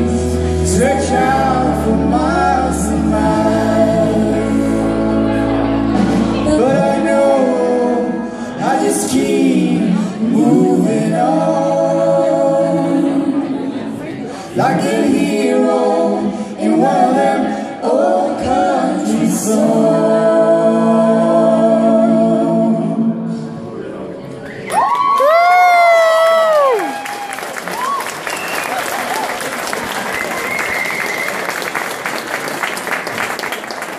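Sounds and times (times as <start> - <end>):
low instrumental backing: 0.0 - 9.4
voices singing in harmony: 0.0 - 23.6.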